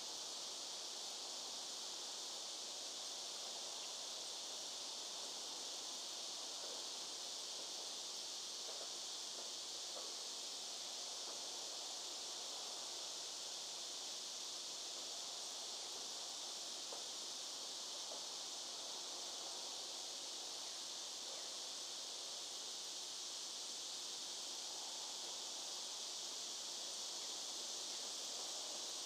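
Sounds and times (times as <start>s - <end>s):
high-pitched insect chorus: 0.0s - 29.0s.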